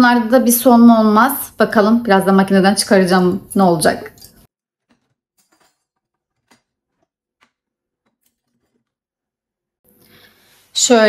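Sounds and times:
metal utensils clinking: 4.8 - 9.0.

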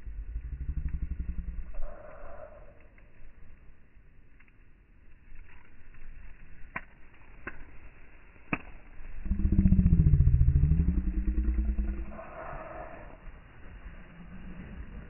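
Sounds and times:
wood fire popping: 0.0 - 15.0
motor engine: 9.2 - 12.2.

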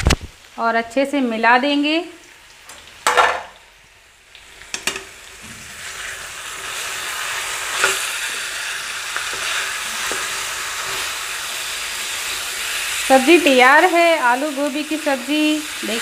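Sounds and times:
vegetables sizzling: 0.0 - 16.0
metal spatula scraping a pan: 4.7 - 8.3.

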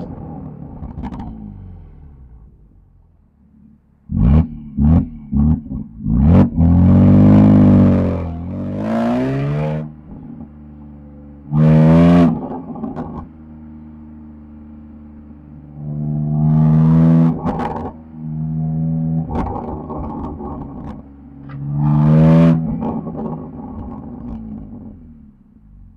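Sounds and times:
exhaust pops: 0.0 - 2.9, 11.6 - 13.4, 17.2 - 18.2, 19.0 - 25.1
car engine revving: 0.0 - 25.9.

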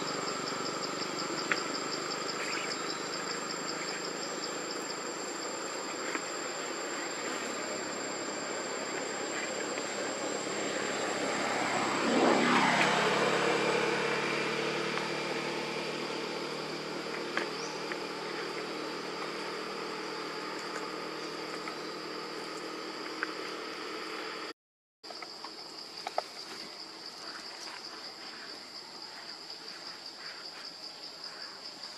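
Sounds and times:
engine passing by: 0.0 - 24.4
high insect drone: 0.0 - 24.5, 25.1 - 31.9.

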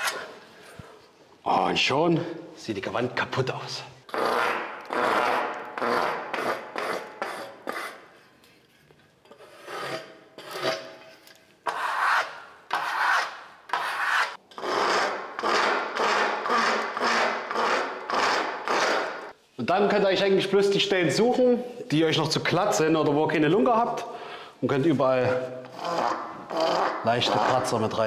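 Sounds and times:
trowel scraping plaster: 0.0 - 0.4, 4.1 - 19.4, 25.6 - 28.0.

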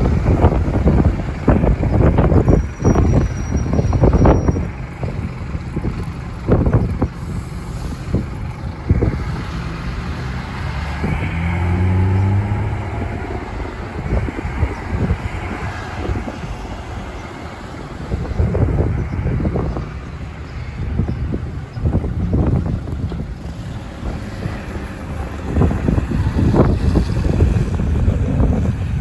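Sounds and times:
bus engine pulling away: 0.0 - 29.0
wind buffeting microphone: 0.0 - 29.0.

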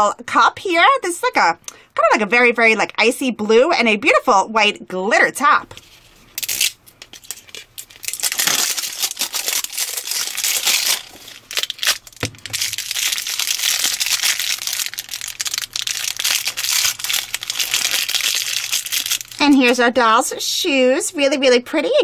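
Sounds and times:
plastic wrapping crinkling: 5.8 - 19.8.

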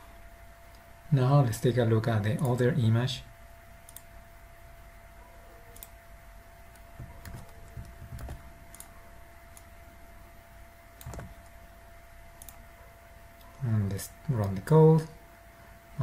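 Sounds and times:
keyboard and mouse clicks: 3.9 - 4.1, 5.7 - 6.0, 6.7 - 8.9, 11.0 - 11.5, 12.4 - 12.6.

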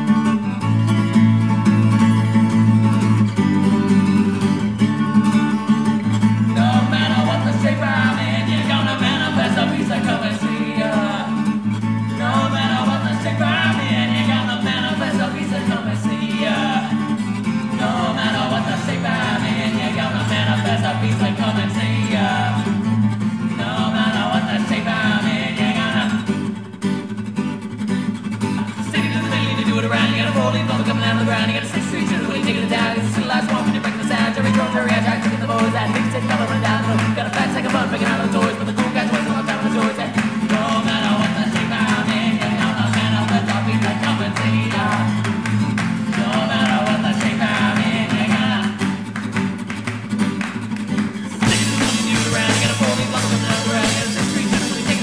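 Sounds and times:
strummed acoustic guitar: 0.0 - 55.0
man singing: 6.0 - 22.8, 23.4 - 26.3, 28.6 - 49.1, 51.3 - 55.0.

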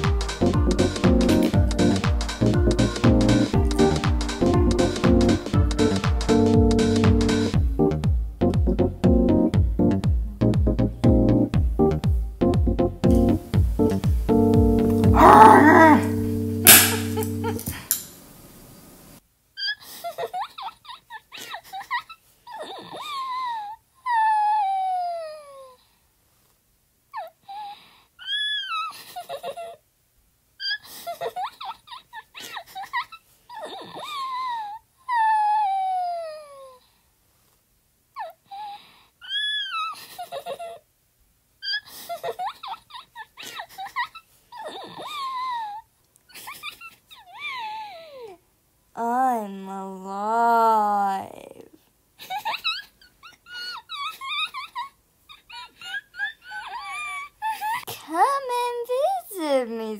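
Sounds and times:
eerie wailing voice: 15.2 - 16.3.

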